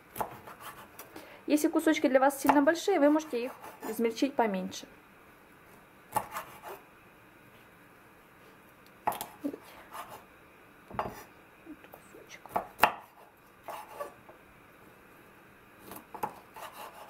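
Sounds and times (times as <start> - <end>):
knife scraping board: 0.2 - 1.1, 3.1 - 4.0, 6.2 - 6.8, 9.1 - 10.2, 12.8 - 14.2, 15.8 - 17.0.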